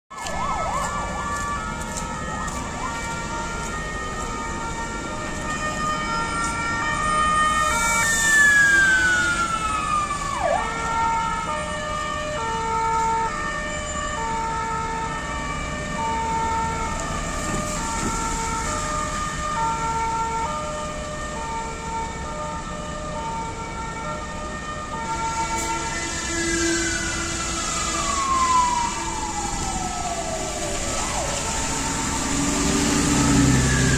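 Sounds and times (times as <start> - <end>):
street traffic: 0.1 - 33.9
two-tone sirens: 0.1 - 33.9.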